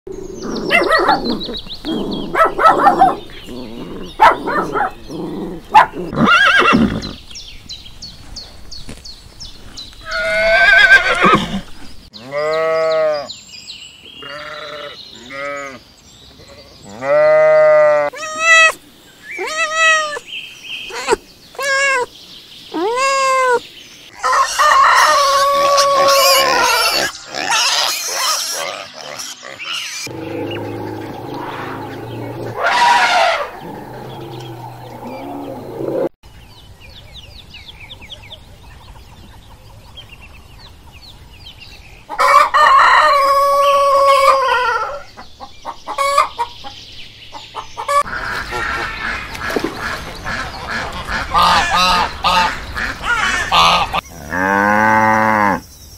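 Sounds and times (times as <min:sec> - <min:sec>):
noisy animal call: 0:00.1 - 0:07.2, 0:10.0 - 0:13.3, 0:14.2 - 0:15.8, 0:16.4 - 0:20.3, 0:22.7 - 0:36.1, 0:47.8 - 0:55.6
dog barks: 0:00.6 - 0:01.4, 0:02.2 - 0:03.3, 0:04.1 - 0:05.0, 0:05.7 - 0:06.1
sheep bleating: 0:14.2 - 0:15.8.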